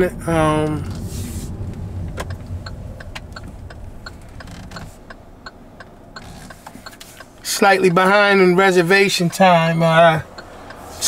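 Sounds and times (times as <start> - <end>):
engine and road rumble: 0.0 - 11.0
car turn signal ticking: 1.7 - 11.0.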